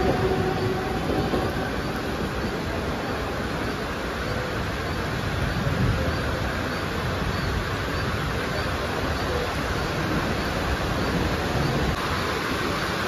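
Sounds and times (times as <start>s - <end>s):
heavy rain hissing: 0.0s - 13.0s
train rumbling away: 0.0s - 13.0s.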